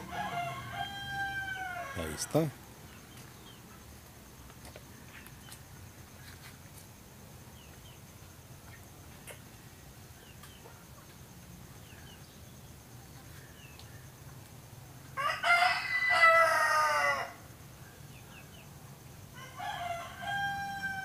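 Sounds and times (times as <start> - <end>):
rooster crowing: 0.0 - 2.4, 15.2 - 17.5, 19.3 - 21.0.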